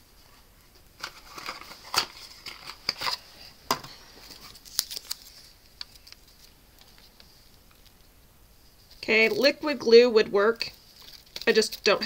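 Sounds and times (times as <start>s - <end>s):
plastic roll clicks and crinkles: 1.0s - 8.0s.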